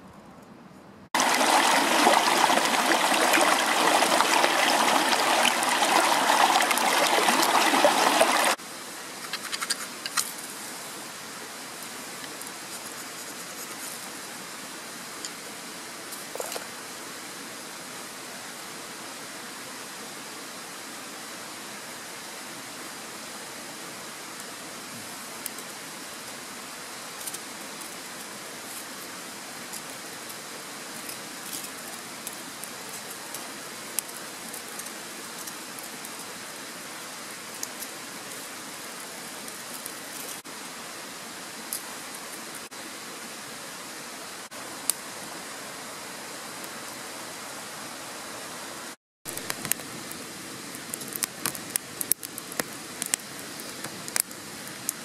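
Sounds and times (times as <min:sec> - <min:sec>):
steady rushing hiss: 0:01.1 - 0:55.0
wood fire crackling: 0:01.2 - 0:08.6, 0:49.3 - 0:55.0
twigs snapping and clicking: 0:49.3 - 0:49.9.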